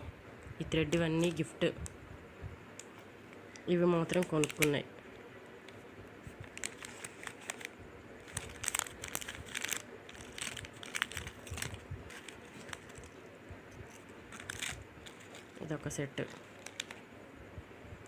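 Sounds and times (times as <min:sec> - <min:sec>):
plastic packets crinkling: 0:03.5 - 0:04.9, 0:06.3 - 0:13.2, 0:13.8 - 0:17.1.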